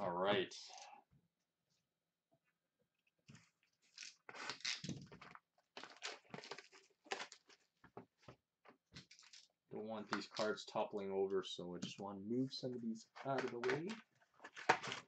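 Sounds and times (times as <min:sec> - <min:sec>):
packaging crinkling and rustling: 0:03.8 - 0:07.8, 0:13.4 - 0:15.0.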